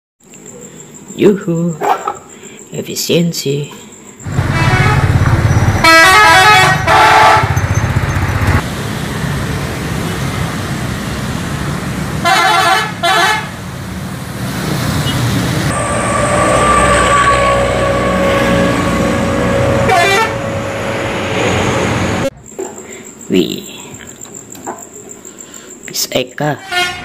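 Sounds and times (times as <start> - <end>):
engine rumble: 4.2 - 12.3, 13.5 - 22.4
passing road traffic: 4.2 - 22.4
bus horn blasts: 4.3 - 7.7, 12.2 - 13.6, 15.0 - 22.3, 26.6 - 27.0.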